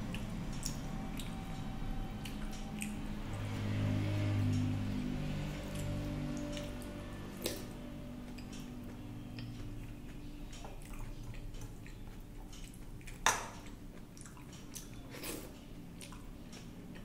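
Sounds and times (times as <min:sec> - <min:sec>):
wet chewing: 0:02.2 - 0:03.5, 0:07.4 - 0:17.0.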